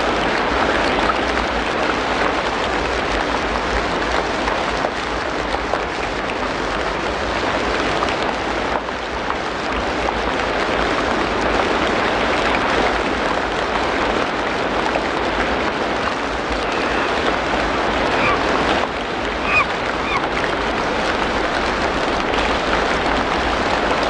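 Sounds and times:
steady rain falling: 0.0s - 24.0s.

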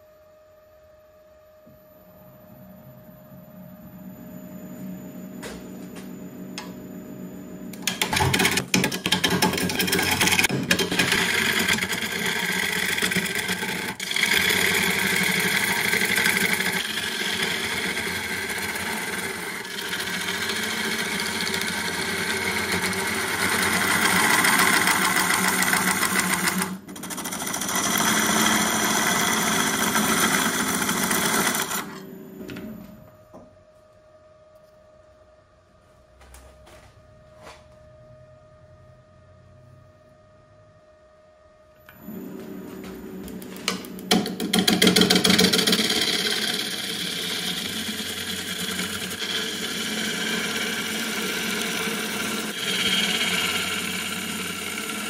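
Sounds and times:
turning tool cutting wood: 7.8s - 32.0s, 44.1s - 55.0s
lathe motor humming: 9.3s - 32.1s, 43.3s - 55.0s.

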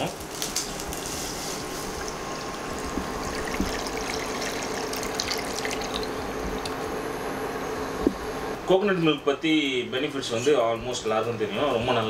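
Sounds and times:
liquid pouring and splashing into pan: 0.9s - 6.2s.

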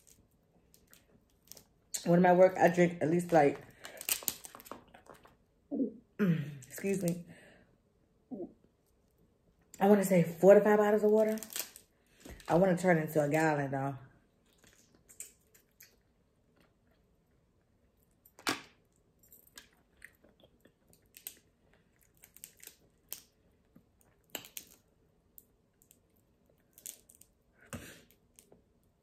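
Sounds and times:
crab shell cracking by hand: 20.9s - 26.0s.

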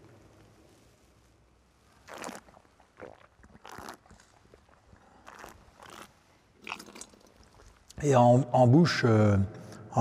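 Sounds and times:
faint slurping hisses: 1.9s - 7.9s.

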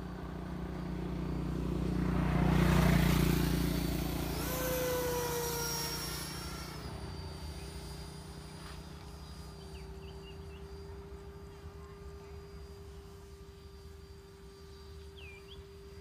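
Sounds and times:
electric ducted fan fly-by whoosh: 0.0s - 10.1s
high fan whine: 0.0s - 16.0s.

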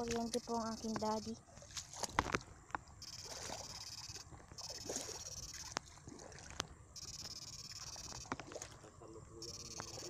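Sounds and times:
feet splashing through water: 1.5s - 2.6s, 3.2s - 3.8s, 4.6s - 6.8s, 8.3s - 8.9s
high-pitched electrical buzz: 3.0s - 5.8s, 7.0s - 8.4s, 9.4s - 10.0s.

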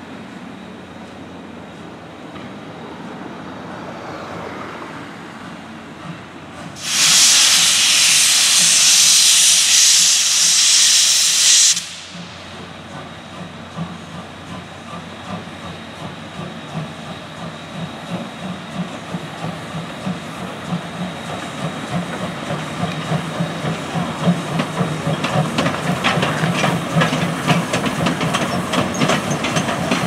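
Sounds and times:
steam locomotive hissing steam: 6.0s - 30.0s.

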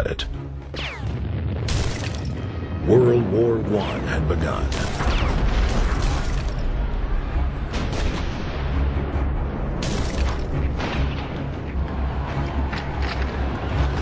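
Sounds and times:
shellfire blasts and gunfire: 4.7s - 6.6s, 7.7s - 8.7s.

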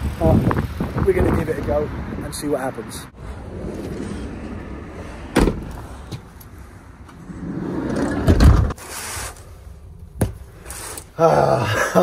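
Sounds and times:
low rumble of traffic: 0.0s - 12.0s
heavy van door thump: 5.3s - 5.8s.

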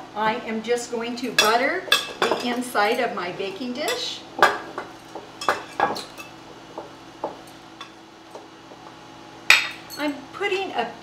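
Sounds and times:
metal spoons clinking: 5.4s - 6.4s.

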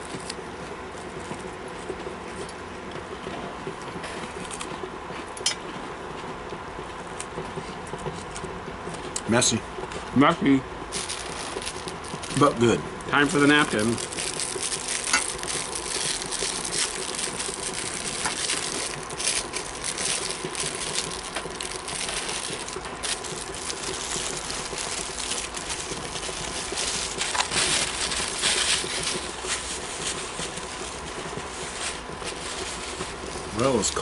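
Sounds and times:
packet tearing: 10.9s - 12.6s, 13.2s - 30.2s
plastic and paper crinkling: 10.9s - 34.0s.

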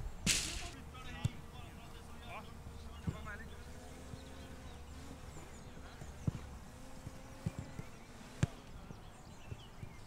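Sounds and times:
boot kicking football: 0.3s - 1.4s.

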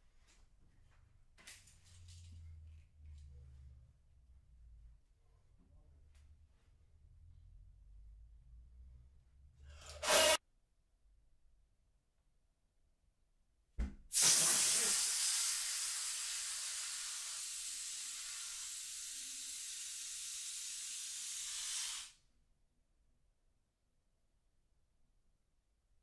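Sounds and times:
air hissing from balloon: 9.9s - 10.4s, 14.1s - 22.2s
brief thump: 13.8s - 14.1s.

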